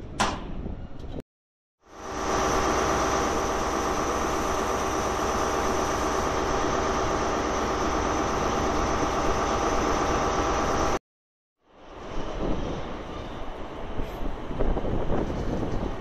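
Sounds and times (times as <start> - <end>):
diesel engine idling with whine: 1.8 - 11.0.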